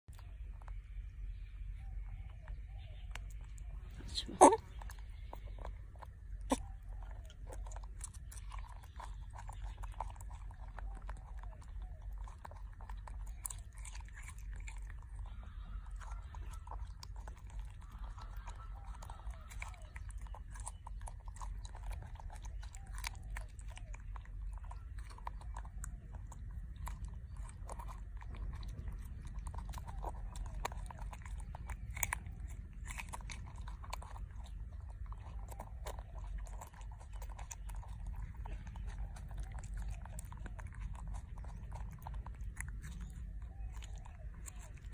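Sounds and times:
monkey chewing fruit: 0:00.1 - 0:44.9
steady low hum: 0:00.1 - 0:44.9.

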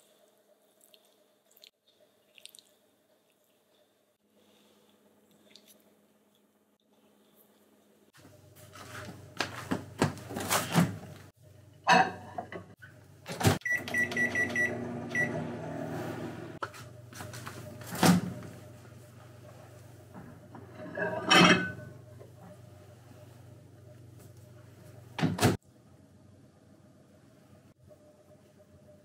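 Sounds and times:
microwave humming: 0:08.2 - 0:26.4
keypad beeps: 0:13.6 - 0:15.4.

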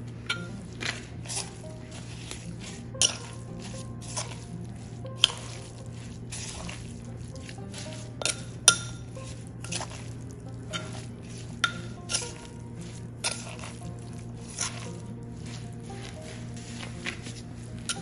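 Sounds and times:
wet squishing of salad: 0:00.0 - 0:18.0
spoon clinking on mortar: 0:00.2 - 0:04.5, 0:05.1 - 0:13.8.

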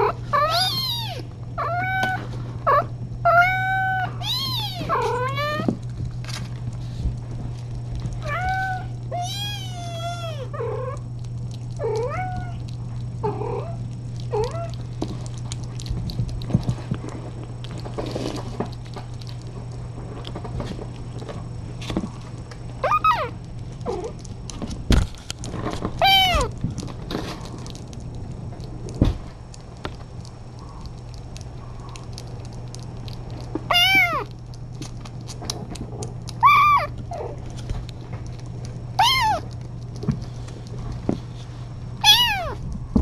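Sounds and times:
kittens mewing: 0:00.0 - 0:05.8, 0:08.2 - 0:11.0, 0:13.2 - 0:14.9, 0:22.8 - 0:24.2, 0:26.0 - 0:26.6, 0:33.7 - 0:34.3, 0:36.3 - 0:37.4, 0:39.0 - 0:39.6, 0:42.0 - 0:42.6
steady low hum: 0:00.0 - 0:43.0.

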